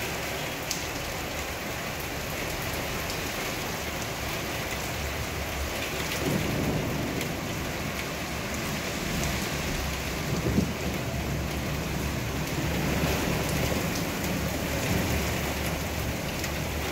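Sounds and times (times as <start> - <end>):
heavy rain pouring: 0.0 - 16.9
low rumble of thunder: 5.2 - 16.9.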